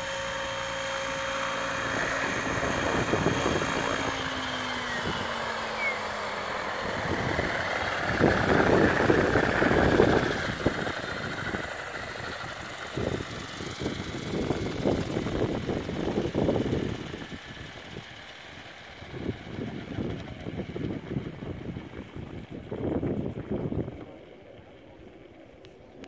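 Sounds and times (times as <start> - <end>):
helicopter rotor whine winding down: 0.0 - 26.0
wind rumbling on microphone: 1.0 - 18.2, 19.0 - 25.2.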